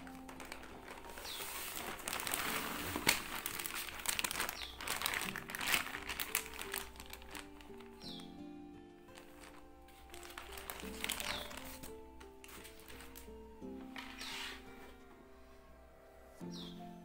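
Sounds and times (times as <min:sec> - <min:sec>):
plastic bag crinkling: 0:00.0 - 0:08.3, 0:09.1 - 0:14.8
calm electronic music: 0:00.0 - 0:17.0.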